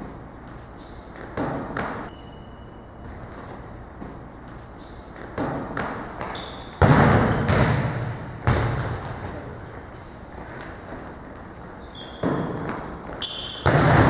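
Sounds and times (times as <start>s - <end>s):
ball bouncing in gym: 0.0s - 2.4s, 3.9s - 9.8s, 10.6s - 14.0s.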